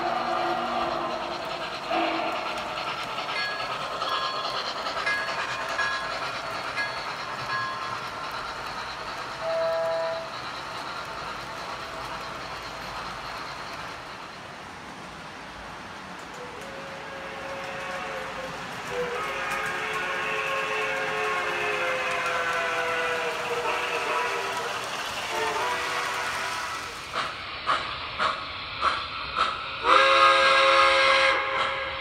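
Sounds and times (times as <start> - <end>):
model train whistle: 1.9 - 2.6, 9.4 - 10.3, 16.6 - 26.9, 29.8 - 32.0.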